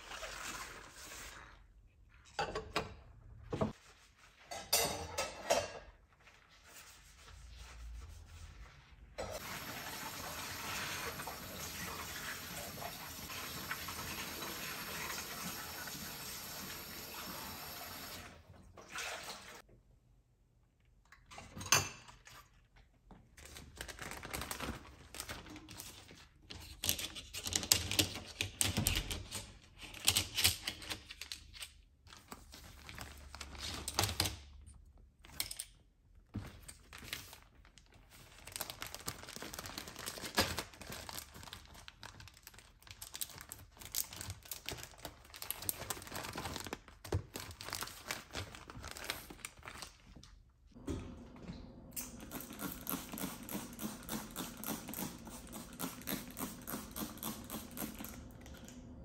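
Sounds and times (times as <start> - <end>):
plastic bag crinkling: 23.4 - 26.1, 36.8 - 50.2.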